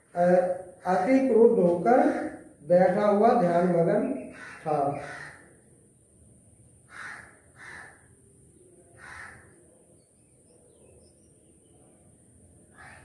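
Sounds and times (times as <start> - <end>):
faint crow cawing: 4.2 - 5.7, 6.9 - 8.2, 8.9 - 9.7, 12.7 - 13.0.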